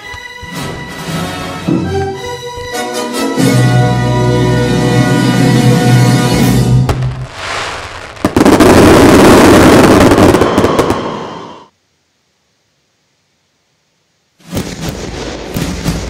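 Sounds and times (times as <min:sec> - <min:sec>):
fireworks bangs and crackling: 0:06.6 - 0:11.7, 0:14.4 - 0:16.0.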